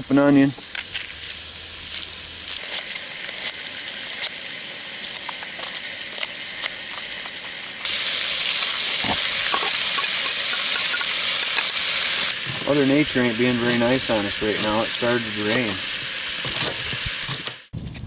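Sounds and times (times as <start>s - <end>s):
fish sizzling in a skillet: 0.4s - 17.7s.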